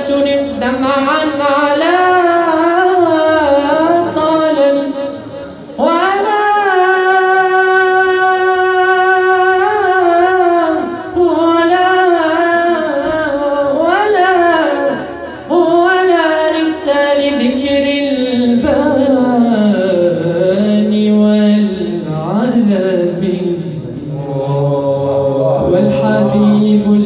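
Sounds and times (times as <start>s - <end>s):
man singing into a microphone: 0.0s - 27.0s.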